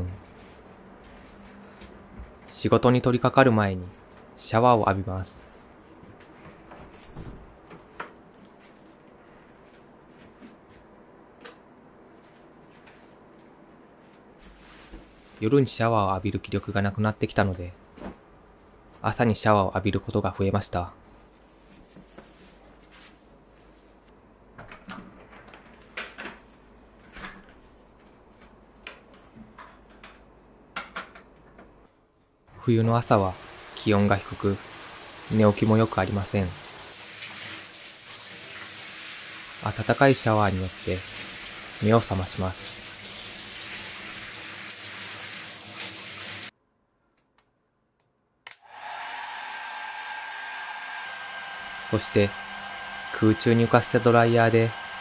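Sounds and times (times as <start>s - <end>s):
handheld shower spraying water: 33.2s - 46.5s, 48.7s - 55.0s
hair dryer running with a whine: 48.6s - 55.0s.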